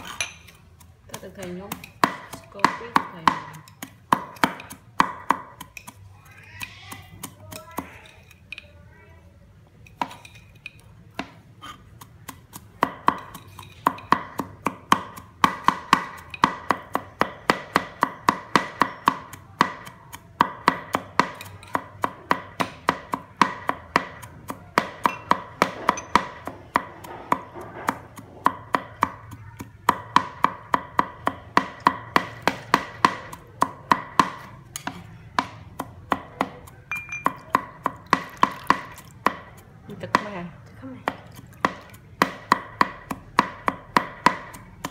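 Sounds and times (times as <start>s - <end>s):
knife chopping on cutting board: 11.2s - 40.3s, 41.0s - 44.9s.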